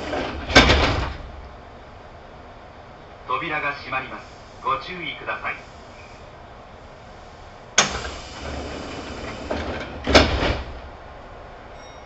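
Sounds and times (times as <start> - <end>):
train doors thudding shut: 0.0 - 1.5, 7.7 - 11.0
train doors rumbling: 0.0 - 12.0.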